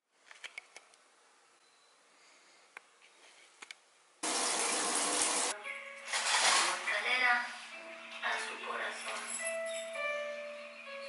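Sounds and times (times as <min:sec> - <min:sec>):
water running from bathtub tap: 0:04.2 - 0:05.5.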